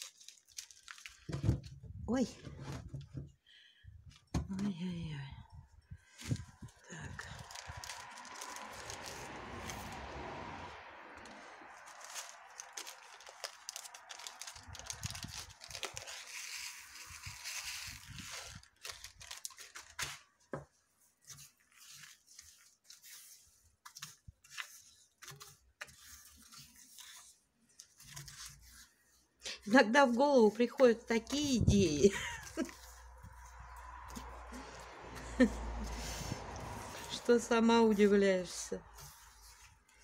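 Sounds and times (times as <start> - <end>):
plastic bag crinkling: 0.0 - 1.4, 6.0 - 10.0, 11.2 - 20.4, 31.2 - 34.8.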